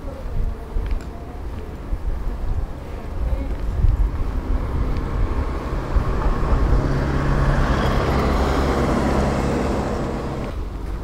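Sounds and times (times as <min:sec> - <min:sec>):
tyre noise: 0:00.4 - 0:11.0
car engine hum: 0:03.3 - 0:11.0.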